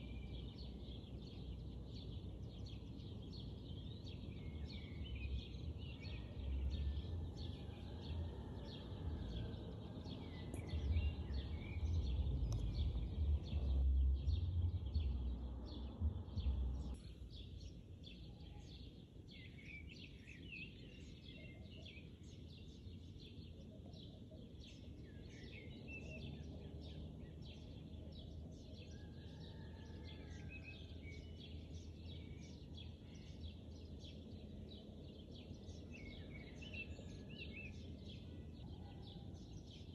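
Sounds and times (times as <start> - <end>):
small birds chirping: 0.0 - 39.9
low rumble: 9.0 - 17.2.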